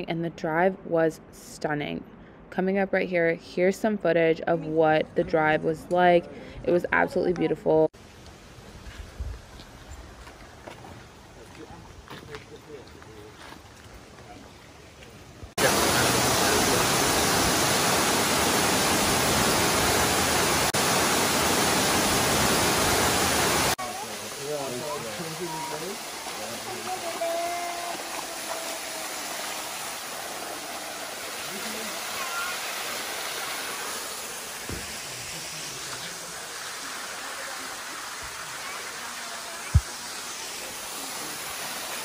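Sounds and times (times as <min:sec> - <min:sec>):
waterfall rushing: 0:15.6 - 0:42.0.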